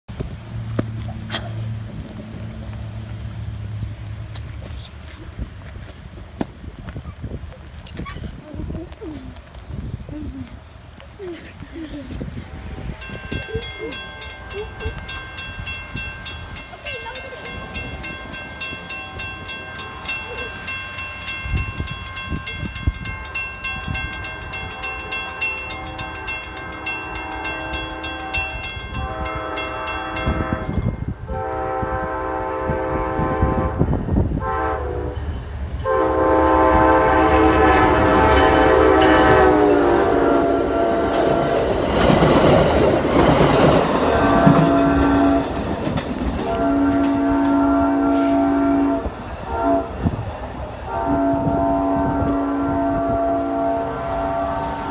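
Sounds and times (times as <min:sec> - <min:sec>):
crossing bell ringing: 0:12.9 - 0:31.8, 0:34.6 - 0:49.9
train horn blasts: 0:13.3 - 0:42.0, 0:44.0 - 0:45.8, 0:46.4 - 0:54.9
train wheels clattering over rails: 0:41.0 - 0:48.6.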